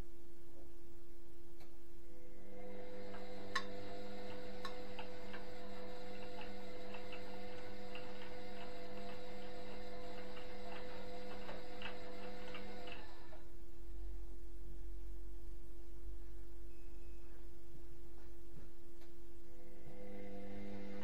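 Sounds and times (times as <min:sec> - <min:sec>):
washing machine humming: 0:02.0 - 0:14.1, 0:18.1 - 0:21.0.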